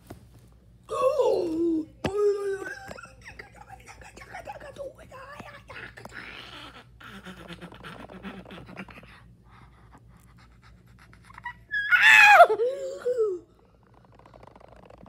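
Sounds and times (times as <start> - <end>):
child crying out: 11.4 - 13.4.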